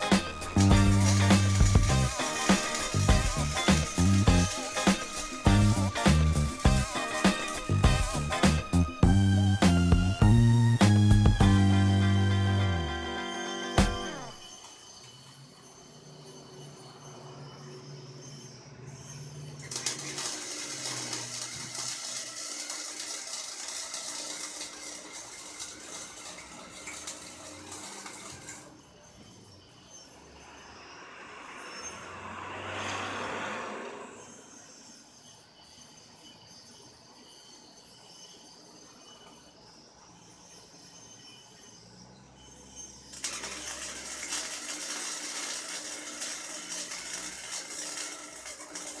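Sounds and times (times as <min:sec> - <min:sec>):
arc welding crackling hiss: 0:00.0 - 0:15.0, 0:19.5 - 0:29.0, 0:42.9 - 0:49.0.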